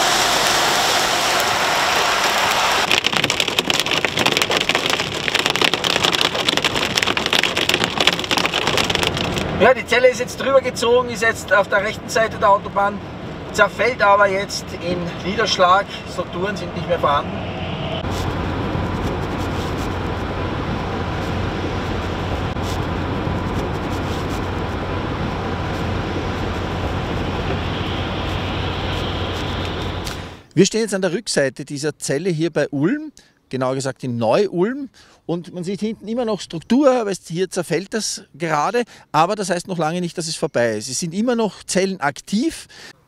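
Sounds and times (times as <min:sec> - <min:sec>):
tyre and road noise: 0:00.0 - 0:30.5
hail and rain rattling on car: 0:02.4 - 0:09.7.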